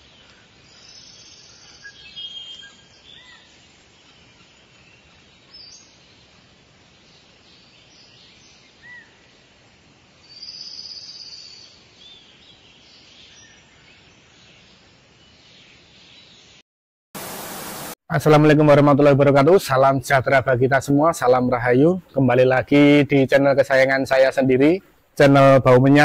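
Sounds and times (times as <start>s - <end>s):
birds chirping: 0.0s - 9.5s, 19.8s - 26.0s
faint steady hiss: 0.0s - 16.6s, 17.2s - 26.0s.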